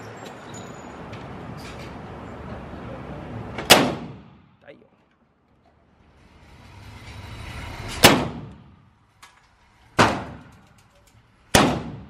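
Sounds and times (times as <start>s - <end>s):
pistol shots: 3.7s - 4.4s, 8.0s - 8.6s, 10.0s - 10.5s, 11.5s - 12.0s
rising rush of noise: 6.0s - 9.1s.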